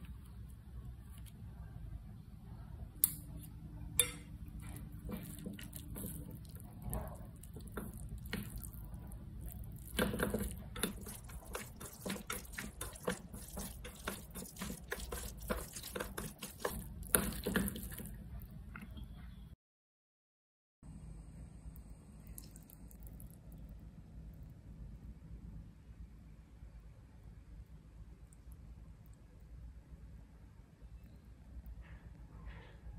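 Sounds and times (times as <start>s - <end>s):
chopsticks clicking on metal bowl: 4.0s - 4.3s
wet slapping of noodles: 4.6s - 18.2s.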